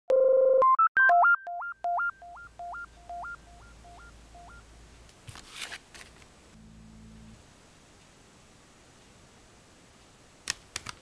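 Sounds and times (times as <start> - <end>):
rustling noise: 5.2 - 6.4.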